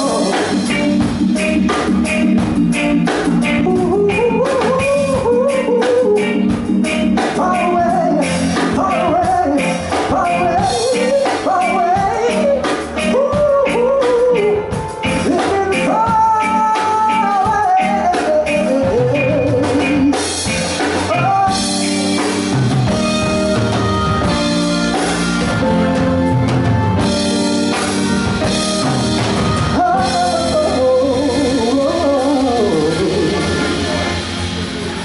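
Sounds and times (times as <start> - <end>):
man singing into microphone: 0.0 - 0.9, 3.5 - 6.6, 7.2 - 20.4, 21.0 - 22.2, 29.7 - 34.2
live reggae band playing: 0.0 - 35.0.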